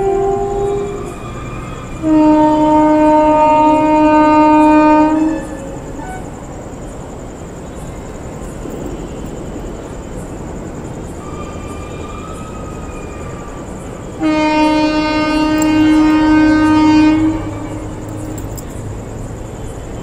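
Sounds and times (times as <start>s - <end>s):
locomotive air horn: 0.0s - 6.5s, 14.2s - 18.6s
train rumbling: 0.0s - 20.0s.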